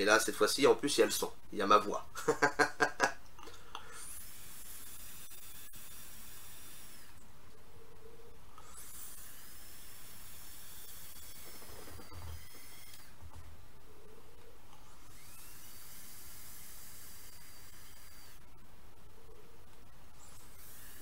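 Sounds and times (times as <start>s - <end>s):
faint hiss of vapour drawn: 3.6s - 7.2s.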